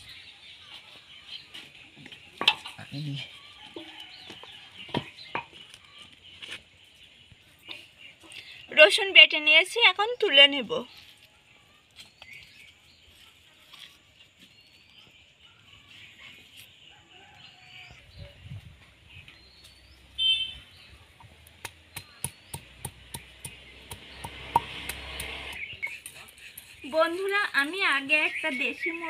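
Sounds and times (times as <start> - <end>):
small birds chirping: 0.0 - 29.0
stone roller tapping on stone: 21.6 - 26.8.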